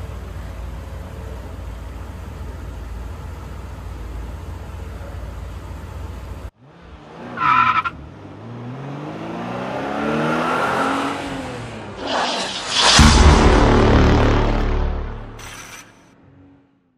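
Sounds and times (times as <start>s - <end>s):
car engine revving: 6.6s - 15.5s
tire screech: 7.1s - 8.9s, 10.0s - 13.2s
rushing whoosh: 12.0s - 15.0s.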